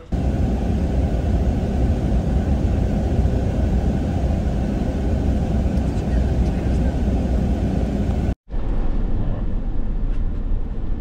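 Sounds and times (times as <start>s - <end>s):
car interior road rumble: 0.0s - 8.7s.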